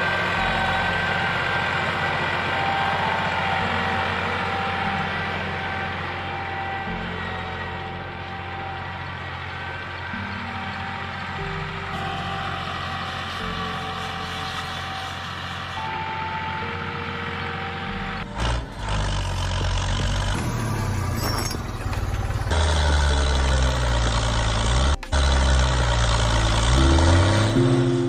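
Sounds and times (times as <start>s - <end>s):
tractor engine revving: 0.0s - 28.0s.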